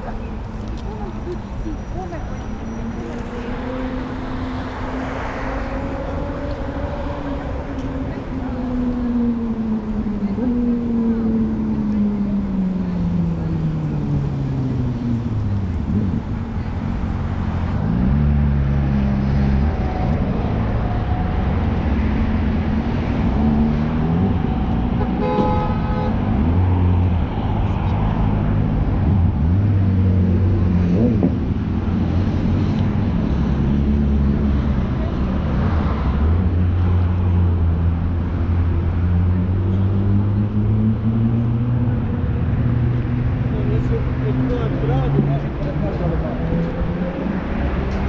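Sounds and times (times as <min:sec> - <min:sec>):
vehicle engines passing: 0:00.0 - 0:48.0
car horn: 0:25.0 - 0:26.2.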